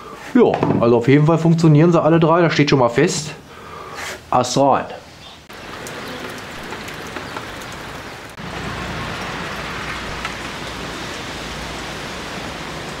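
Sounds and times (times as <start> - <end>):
drops ticking: 5.5 - 10.8
steady rain falling: 5.5 - 13.0.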